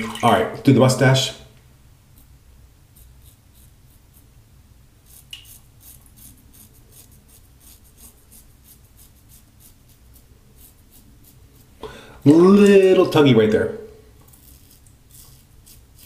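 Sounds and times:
razor scraping stubble: 2.9 - 4.3, 5.0 - 11.8, 14.2 - 16.0.

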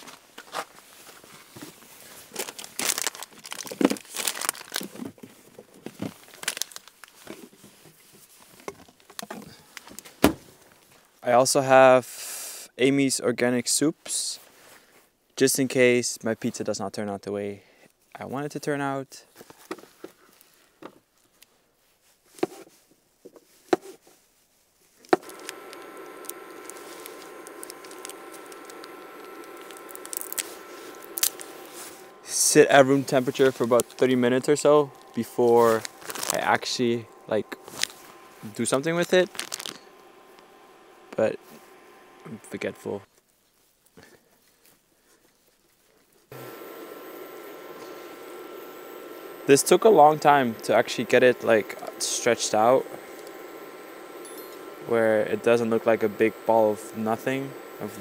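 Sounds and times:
plastic packaging crinkling: 0.0 - 7.5, 25.2 - 42.7
cooktop humming with whining tones: 25.1 - 43.1, 46.2 - 58.0.

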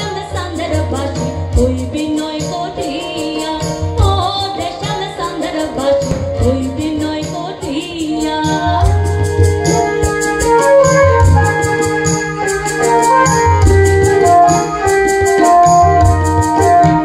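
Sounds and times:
woman singing into microphone: 0.0 - 12.2
keyboard: 0.0 - 17.0.

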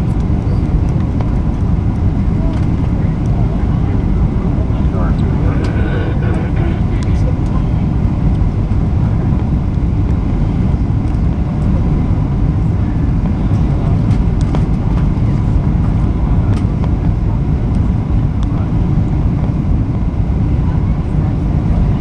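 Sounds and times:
airplane engines rumbling: 0.0 - 22.0
rushing air: 4.2 - 8.2.

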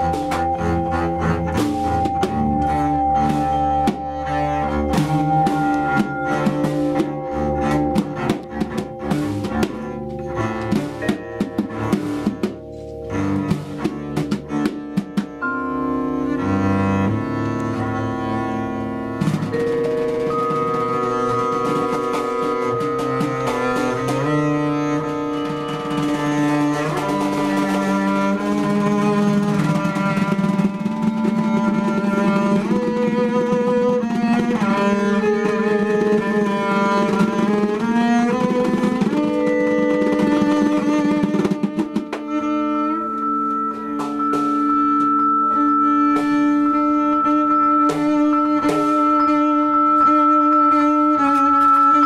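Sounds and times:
hand drum strokes: 0.0 - 15.7, 16.3 - 52.0
vibraphone struck with mallets: 0.0 - 28.5, 39.8 - 52.0
bowed double bass: 0.0 - 52.0.

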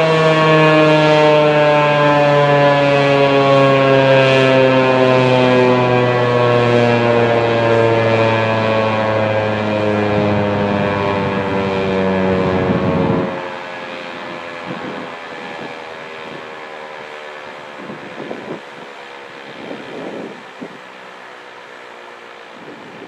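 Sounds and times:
siren motor low hum: 0.0 - 23.0
warning siren winding down: 0.0 - 23.0
wind buffeting microphone: 9.4 - 13.5, 14.2 - 16.7, 17.5 - 21.1, 22.4 - 23.0.

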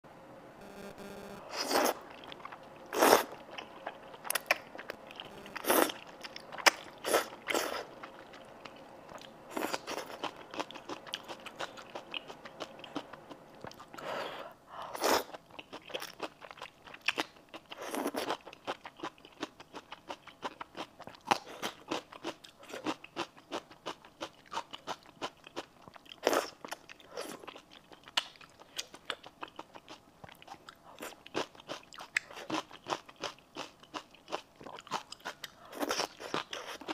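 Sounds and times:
slurping noodles: 1.5 - 2.3, 2.9 - 3.4, 6.7 - 8.0.

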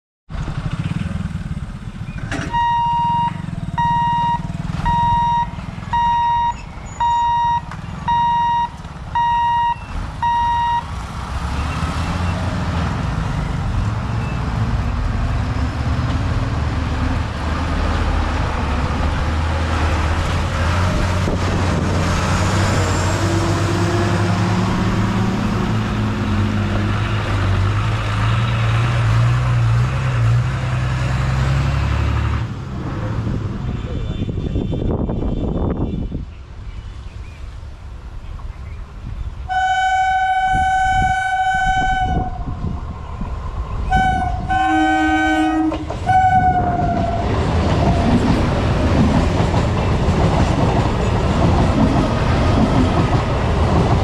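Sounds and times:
lorry diesel engine running: 0.3 - 34.2
level crossing warning beeper: 2.5 - 10.9.

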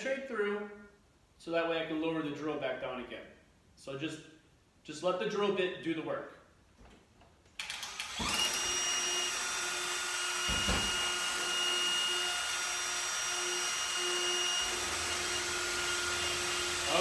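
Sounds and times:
drill whining: 7.6 - 17.0
knock: 10.5 - 11.0.

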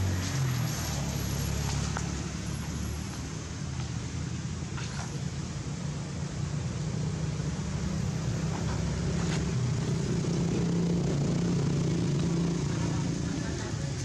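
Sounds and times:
low engine hum: 0.0 - 14.0.

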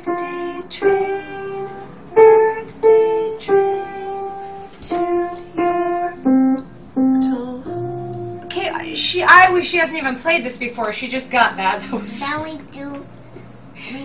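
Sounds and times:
piano single notes melody: 0.1 - 9.0.

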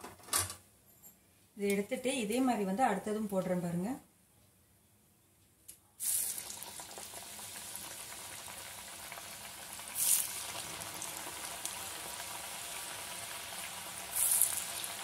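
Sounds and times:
dough deep-frying in hot oil: 6.0 - 15.0.

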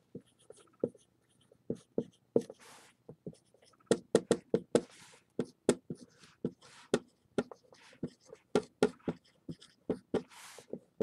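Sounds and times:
marker writing on whiteboard: 0.0 - 11.0.

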